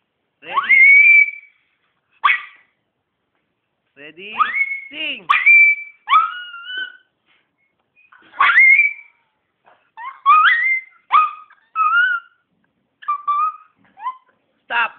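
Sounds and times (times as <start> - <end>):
dog howling: 8.4 - 9.1, 10.0 - 12.4.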